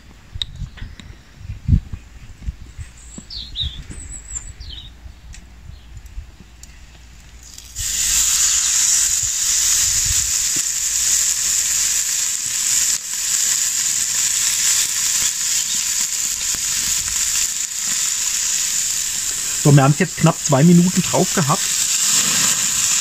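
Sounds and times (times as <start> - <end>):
meat sizzling on grill: 7.3 - 23.0.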